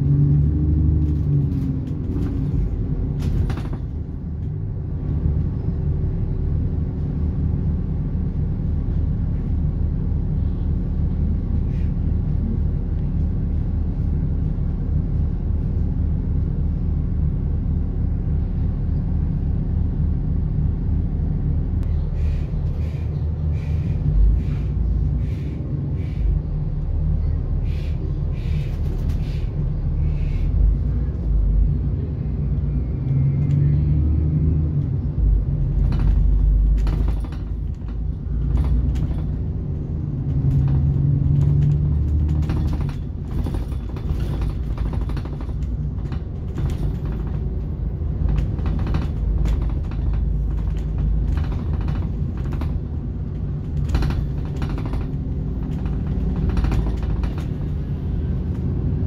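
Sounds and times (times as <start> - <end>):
bus engine and road rumble: 0.0 - 59.0
bodywork clicks and rattles: 0.4 - 6.2, 34.8 - 59.0.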